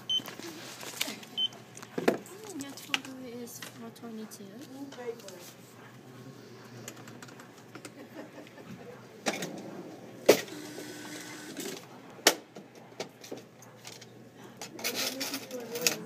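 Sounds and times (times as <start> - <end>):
receipt printer running: 10.2 - 12.1
coins clinking in cash drawer: 14.6 - 16.0.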